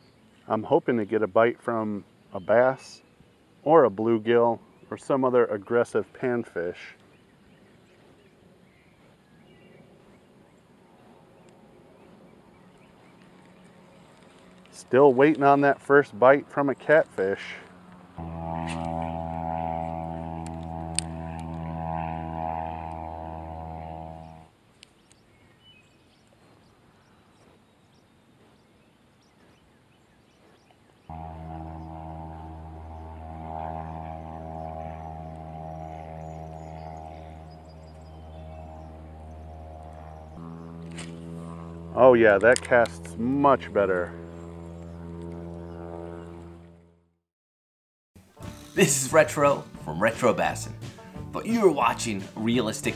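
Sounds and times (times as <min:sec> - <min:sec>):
propeller airplane droning overhead: 0:00.0 - 0:47.2, 0:48.2 - 0:52.9
faint low hum: 0:03.7 - 0:24.5, 0:31.1 - 0:46.9
soft bird chirps: 0:24.2 - 0:31.1.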